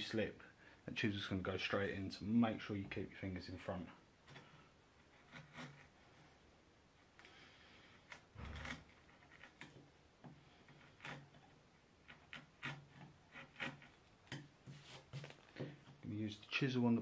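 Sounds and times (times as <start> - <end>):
chisel scraping wood: 4.3 - 6.4, 7.9 - 15.3.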